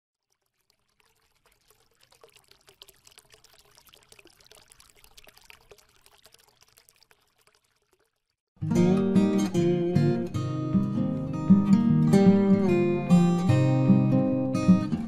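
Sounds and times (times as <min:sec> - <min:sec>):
strummed acoustic guitar music: 0:08.6 - 0:15.0.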